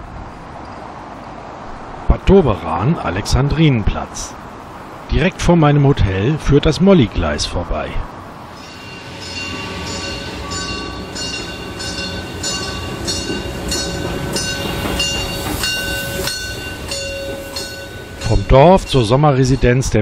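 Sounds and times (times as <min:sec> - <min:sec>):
low rumble of train: 0:00.0 - 0:20.0
locomotive bell ringing: 0:08.5 - 0:20.0.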